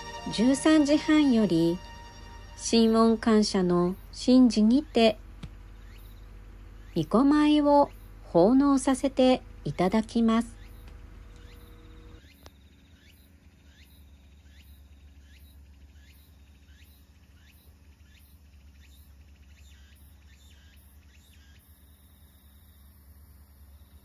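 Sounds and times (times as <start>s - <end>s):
insects chirping: 0.0s - 8.2s, 9.8s - 24.0s
low steady hum: 0.0s - 12.2s.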